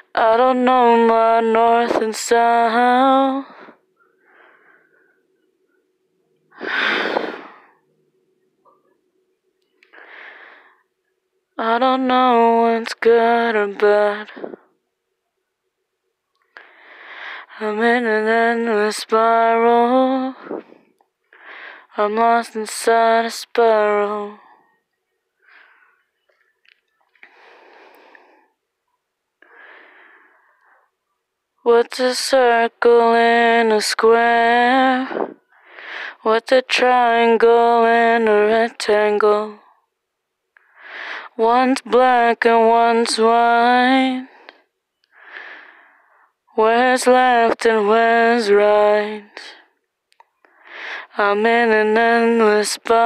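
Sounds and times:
singer breathing: 0:03.4 - 0:05.2, 0:06.5 - 0:07.8, 0:09.9 - 0:10.8, 0:16.5 - 0:17.6, 0:20.3 - 0:22.0, 0:25.4 - 0:26.0, 0:27.2 - 0:28.6, 0:29.4 - 0:31.0, 0:35.0 - 0:36.2, 0:40.6 - 0:41.4, 0:44.2 - 0:46.4, 0:50.5 - 0:51.2.

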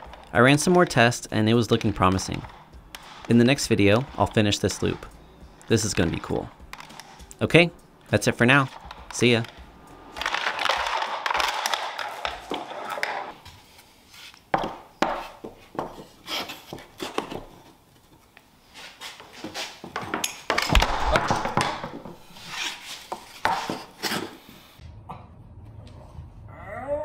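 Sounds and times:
wood pieces rubbing and scraping: 0:00.0 - 0:13.4, 0:18.8 - 0:24.5.

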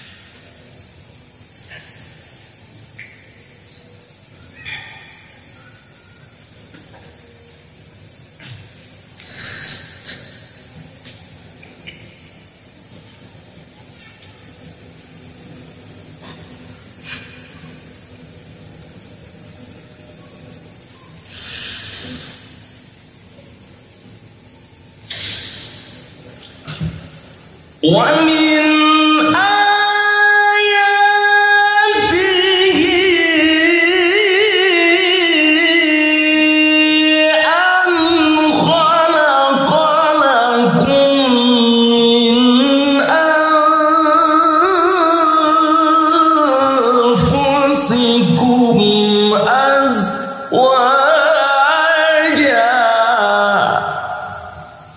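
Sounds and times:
low sound system hum: 0:00.0 - 0:54.9
person breathing into microphone: 0:21.3 - 0:22.7
man reciting melodically: 0:27.8 - 0:54.5.

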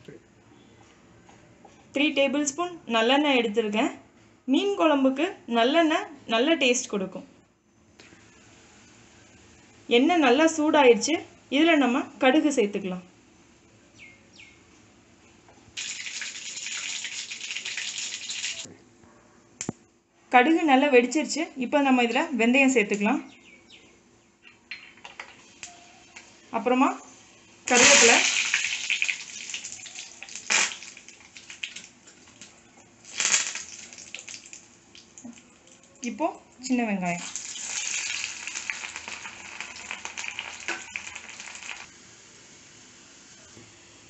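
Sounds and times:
seeds sizzling and popping in oil: 0:15.7 - 0:18.7, 0:25.0 - 0:43.8.

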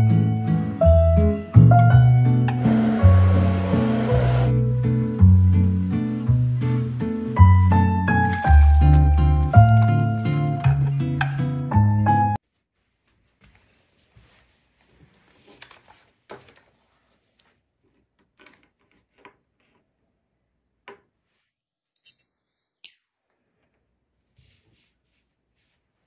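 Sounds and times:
soft handling rustles: 0:12.5 - 0:19.8.

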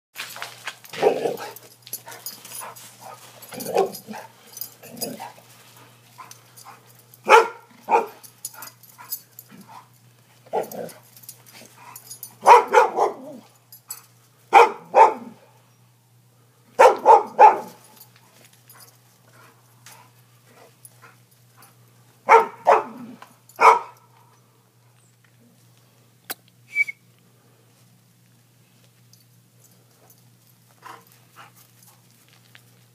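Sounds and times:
dogs barking and fighting: 0:00.8 - 0:15.5, 0:16.8 - 0:24.1.

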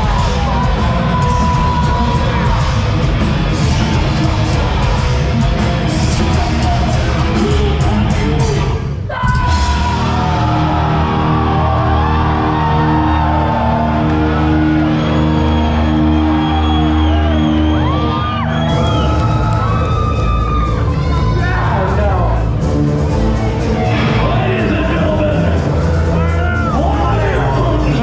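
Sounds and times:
distorted guitar chords: 0:00.0 - 0:08.8
drums and cymbals crashing: 0:00.0 - 0:12.6, 0:18.6 - 0:28.0
audience yelling: 0:00.0 - 0:22.4
heavy metal band playing: 0:00.0 - 0:28.0.

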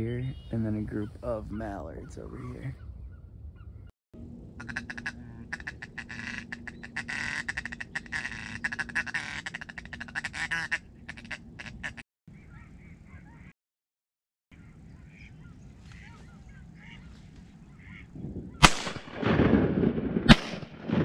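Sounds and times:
duck quacking: 0:04.6 - 0:12.0.

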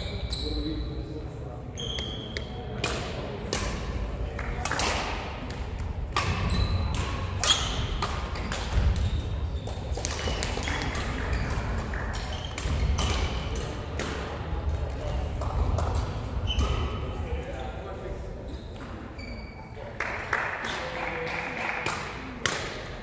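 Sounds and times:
shoe squeaks: 0:00.0 - 0:01.1, 0:01.7 - 0:02.6, 0:06.2 - 0:08.0, 0:09.0 - 0:13.3, 0:16.4 - 0:17.8, 0:18.4 - 0:19.8
rackets hitting shuttlecock: 0:02.0 - 0:17.2, 0:21.8 - 0:23.0.

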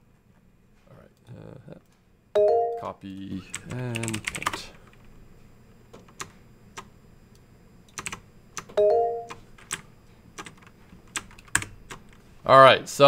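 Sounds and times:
two-note electronic chime: 0:02.4 - 0:02.9, 0:08.8 - 0:09.3.

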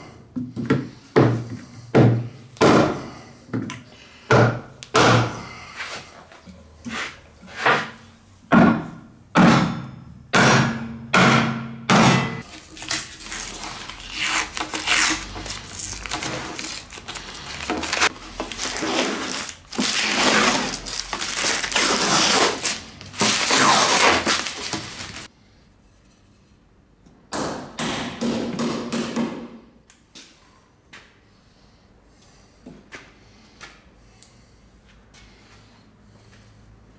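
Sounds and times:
plastic film crackling peeled off: 0:12.5 - 0:25.3.

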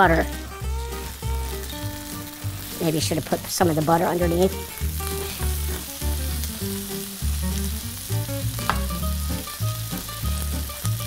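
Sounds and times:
background music with bass: 0:00.0 - 0:11.0
food sizzling in a pan: 0:00.0 - 0:11.0
sharp tap: 0:08.6 - 0:09.0.

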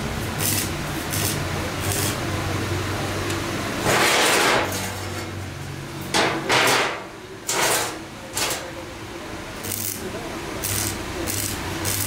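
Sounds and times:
welding arc crackling: 0:00.0 - 0:02.3, 0:09.6 - 0:12.0.

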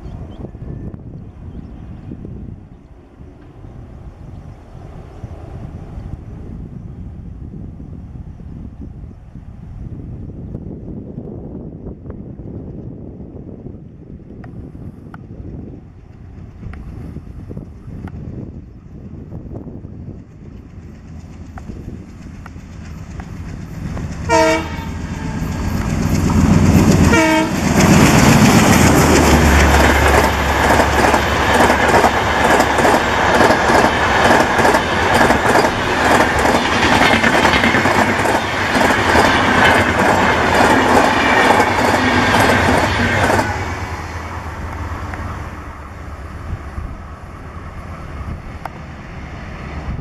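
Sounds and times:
locomotive engine rumble: 0:15.4 - 0:50.0
locomotive horn blasts: 0:24.3 - 0:25.5, 0:27.0 - 0:27.7.

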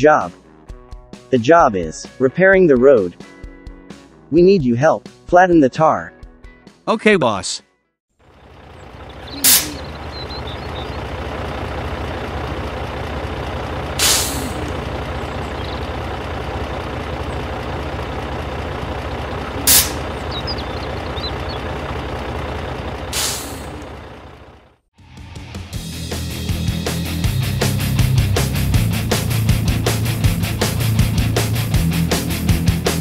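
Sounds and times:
truck engine running: 0:08.2 - 0:33.0
air brake hisses: 0:09.4 - 0:09.8, 0:14.0 - 0:14.6, 0:19.6 - 0:20.1, 0:23.1 - 0:23.8.

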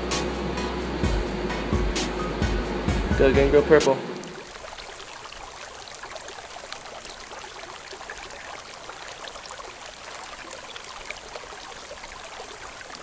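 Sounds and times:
water trickling and bubbling: 0:04.0 - 0:13.0.

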